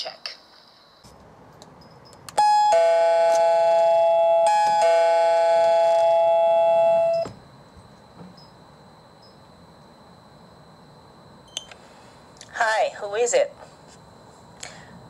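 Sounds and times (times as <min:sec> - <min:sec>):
doorbell chime ding-dong: 0:02.4 - 0:07.4.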